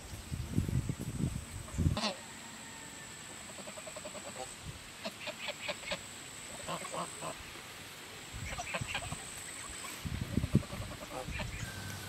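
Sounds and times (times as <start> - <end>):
geese honking: 1.9 - 2.2, 3.5 - 7.5, 8.4 - 12.0.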